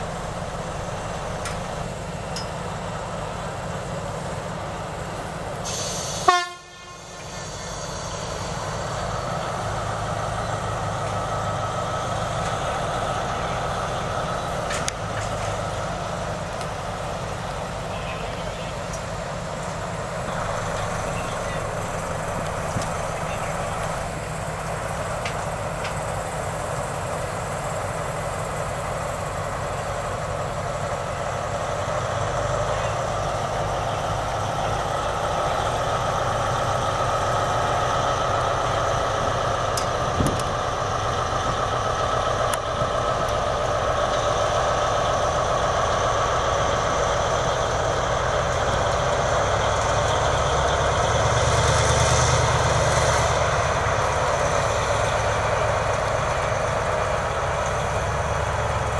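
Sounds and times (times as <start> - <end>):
diesel locomotive engines running: 0.0 - 58.9.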